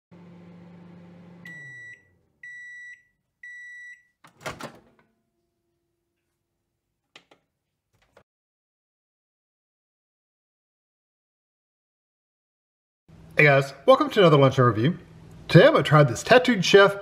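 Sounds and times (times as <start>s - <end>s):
microwave oven humming: 0.1s - 5.6s
microwave beeps: 1.0s - 4.2s.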